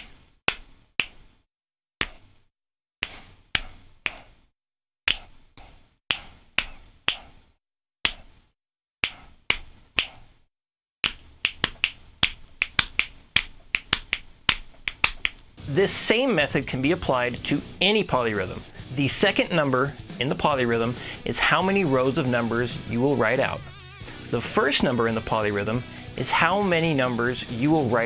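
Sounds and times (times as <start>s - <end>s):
hand slaps on thigh: 0.0s - 1.2s, 2.0s - 2.3s, 3.0s - 4.3s, 5.1s - 5.4s, 6.1s - 7.4s, 8.0s - 8.3s, 9.0s - 10.3s, 11.0s - 15.4s
finger snaps: 2.0s - 2.2s, 3.0s - 4.2s, 5.1s - 5.3s, 6.1s - 7.3s, 8.0s - 8.3s, 9.0s - 10.2s, 11.0s - 15.4s.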